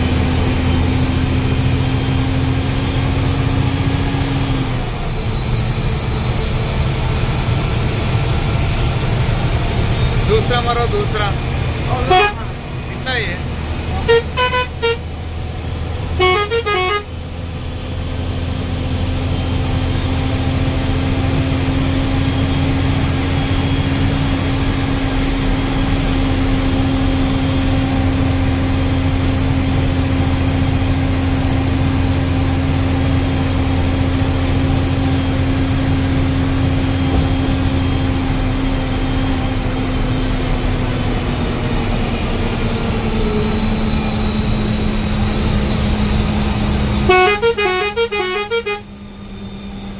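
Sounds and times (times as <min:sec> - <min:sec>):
bus engine droning: 0:00.0 - 0:49.9
road noise: 0:00.0 - 0:49.9
vehicle horn blasts: 0:12.0 - 0:12.5, 0:14.0 - 0:15.1, 0:16.2 - 0:17.1, 0:47.1 - 0:48.9.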